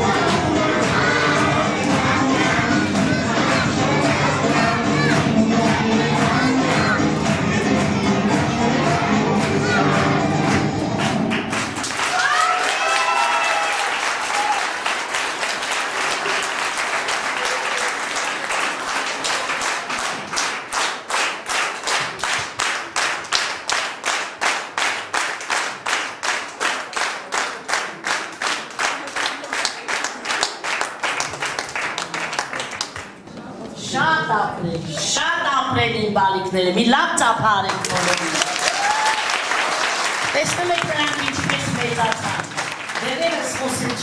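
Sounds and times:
rhythmic clapping in unison: 0.0 - 33.2, 37.7 - 44.0
audience applauding: 10.4 - 33.2, 37.7 - 44.0.

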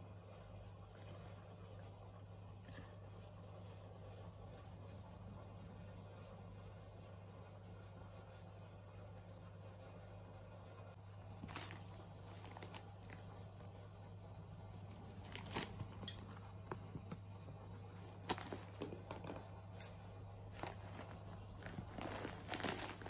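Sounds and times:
plastic packet rustling and crinkling: 11.3 - 13.4, 14.9 - 17.1, 17.9 - 23.0
cat scuffling on carpet: 20.5 - 23.0.

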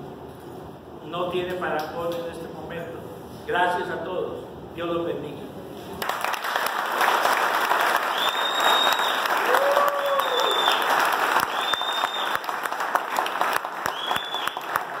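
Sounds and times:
audience applauding: 6.0 - 15.0
short high whistles: 8.1 - 9.3, 11.5 - 12.4, 13.9 - 14.8.

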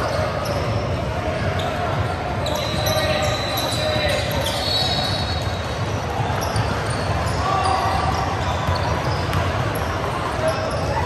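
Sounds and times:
distant voices in a hall: 0.0 - 11.0
ball bouncing on a hard court: 8.1 - 9.8.

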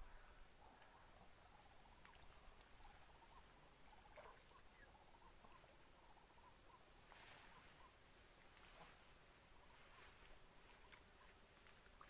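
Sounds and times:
insects chirping: 0.0 - 12.0.

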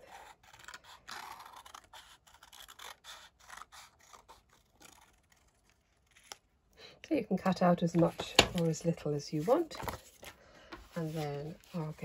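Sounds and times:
scissors snipping paper: 0.0 - 6.4.

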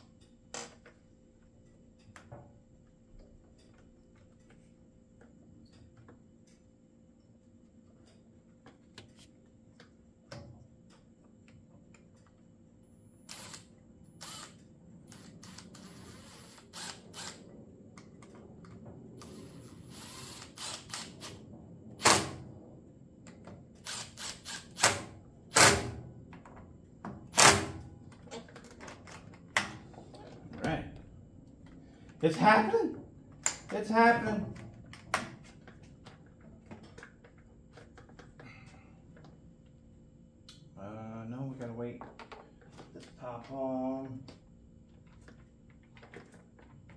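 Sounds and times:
cordless drill bursts: 13.3 - 17.4, 19.2 - 21.4, 23.8 - 25.6.

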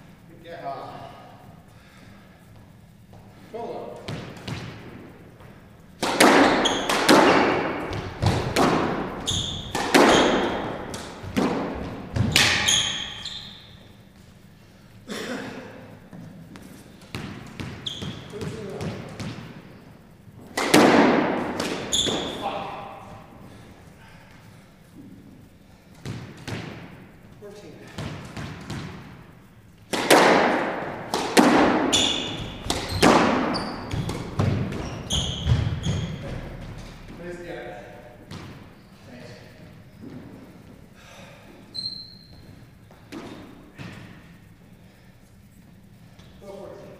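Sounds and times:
squash ball hits echoing: 3.9 - 13.9, 16.1 - 19.8, 20.4 - 23.4, 25.9 - 27.2, 27.8 - 37.4, 38.1 - 38.8, 42.9 - 44.4
squash ball cracks: 6.0 - 12.7, 20.4 - 22.3, 29.8 - 34.8
shoes squeaking on wooden floor: 6.4 - 14.2, 16.1 - 19.2, 21.7 - 22.7, 31.8 - 37.2, 41.6 - 43.9.

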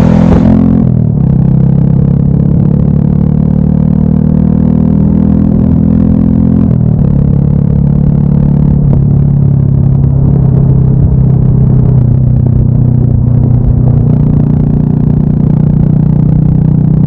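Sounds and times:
low rumble: 0.0 - 3.2, 6.6 - 17.0
motorcycle engine running: 0.0 - 17.0.

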